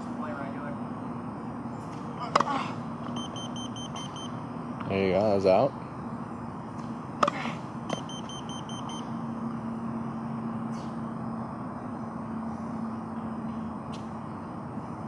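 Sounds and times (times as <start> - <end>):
rapid high beeps: 3.2 - 4.4, 7.9 - 9.2.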